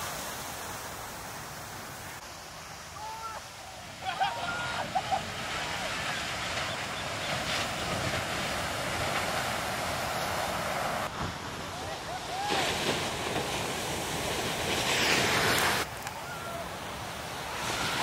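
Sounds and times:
surf breaking on shore: 0.0 - 18.0.

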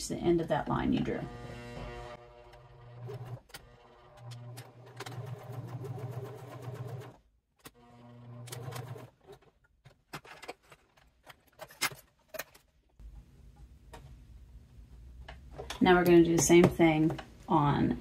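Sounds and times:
sewing machine stitching: 1.3 - 9.6.

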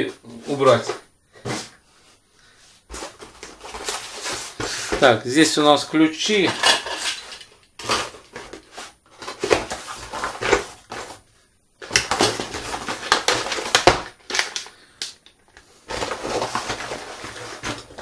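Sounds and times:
plastic packaging rustling: 2.9 - 5.2, 6.3 - 18.0.

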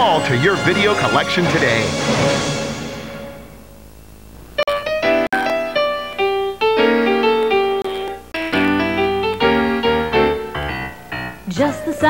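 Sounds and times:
piano ballad: 4.7 - 12.0.

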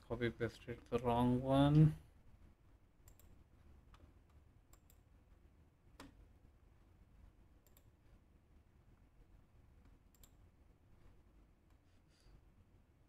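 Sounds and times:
computer mouse clicks: 3.0 - 5.1, 7.6 - 8.0, 9.8 - 10.4.

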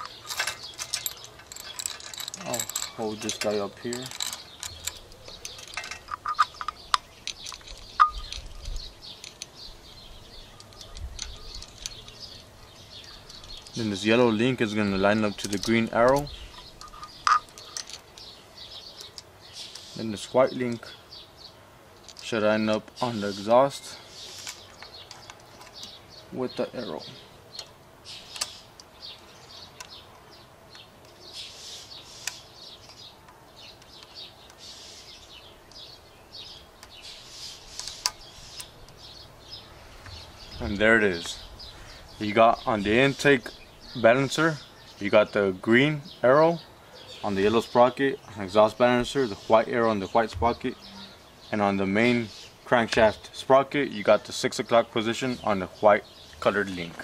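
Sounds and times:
metal chain clinking: 0.0 - 9.7, 10.3 - 14.0
sharp metal clicks: 0.0 - 20.0, 27.5 - 31.2, 35.7 - 40.2
birds chirping: 0.0 - 57.0.

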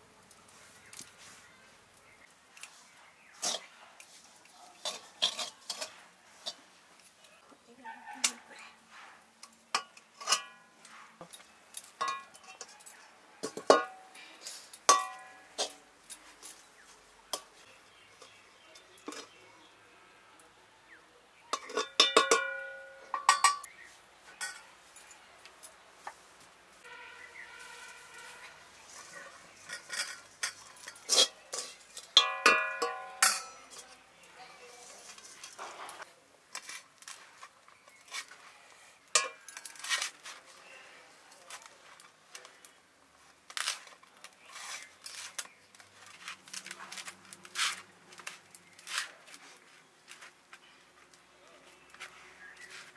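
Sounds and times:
metal spoon clinking on pot: 4.8 - 6.6, 9.4 - 16.3, 21.5 - 23.7, 24.4 - 25.1, 29.6 - 34.1, 39.1 - 39.9.

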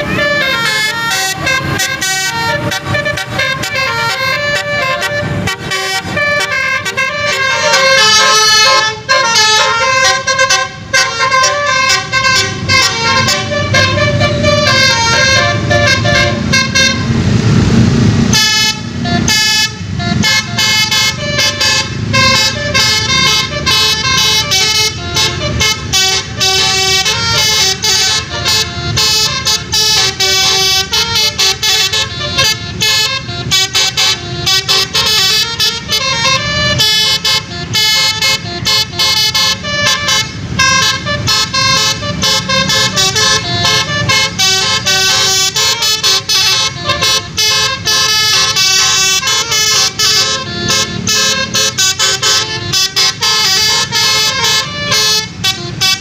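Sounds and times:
multi-tone horn playing melody: 0.0 - 56.0
loud low rumbling: 11.6 - 30.1.

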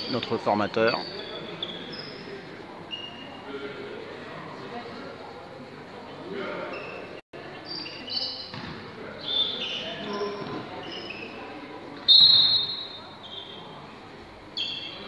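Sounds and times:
sneakers squeaking on gym floor: 0.0 - 3.5, 6.6 - 13.8
basketball bouncing: 8.5 - 8.8.

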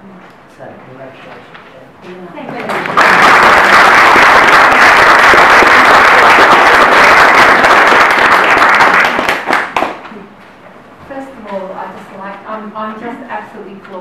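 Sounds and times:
crowd applauding: 2.7 - 10.1.

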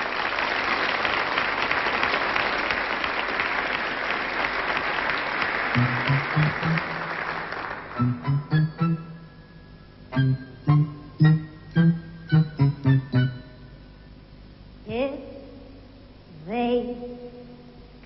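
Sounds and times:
audience applauding: 0.0 - 8.7
band playing low notes: 5.8 - 14.1.

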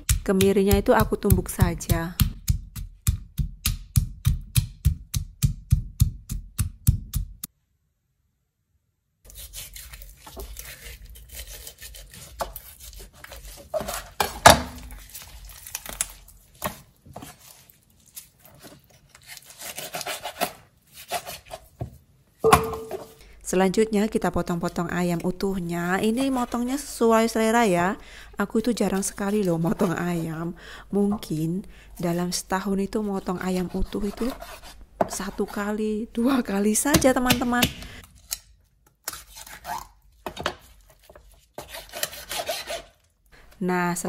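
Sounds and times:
pestle pounding in stone mortar: 0.0 - 7.4, 22.5 - 23.2.

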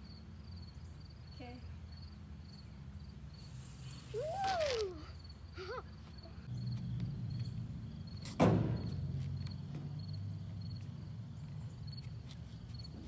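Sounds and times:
thump on hollow skate ramp: 8.3 - 9.0.

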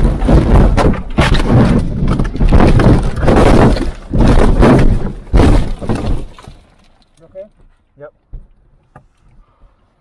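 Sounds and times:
car body crashing and crunching: 0.0 - 7.0.

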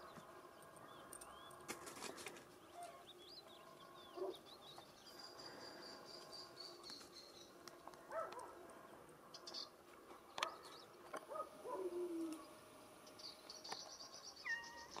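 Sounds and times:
low rising and falling bird calls: 8.8 - 15.0
high chirps from small birds: 12.2 - 15.0.

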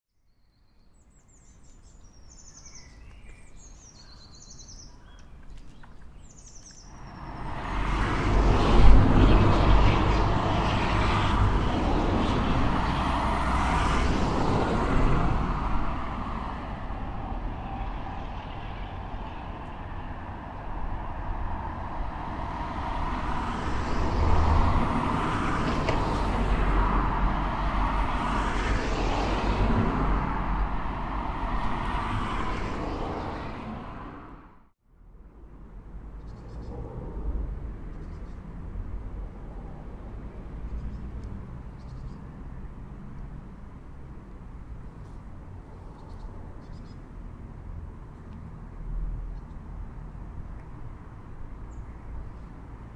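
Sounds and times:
faint birds chirping: 0.2 - 7.5
cars passing: 6.9 - 52.9.

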